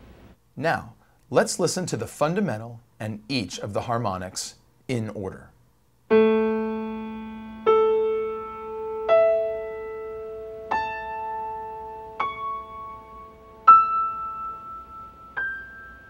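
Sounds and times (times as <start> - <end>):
piano single notes: 6.1 - 16.0.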